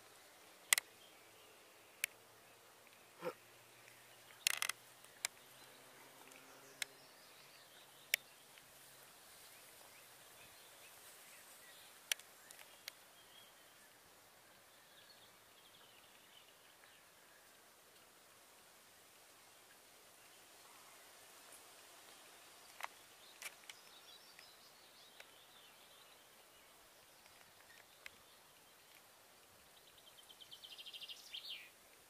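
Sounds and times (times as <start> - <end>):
faint bird calls: 2.9 - 5.5.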